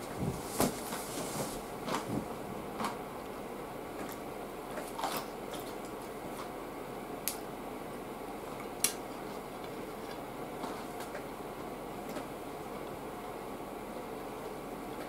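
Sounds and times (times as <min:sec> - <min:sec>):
soft chewing: 0:08.5 - 0:11.2.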